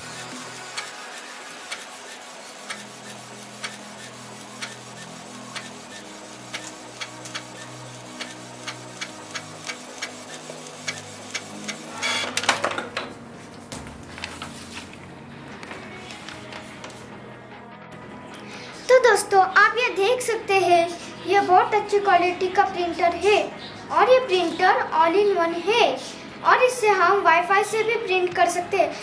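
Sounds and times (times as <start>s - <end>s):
printer feeding out sheet whirring: 0.0s - 12.4s
printer mechanism ticking: 0.0s - 12.4s.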